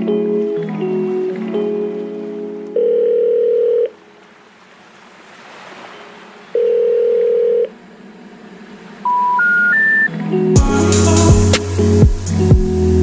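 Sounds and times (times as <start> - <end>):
long electronic tones: 9.0 - 13.0.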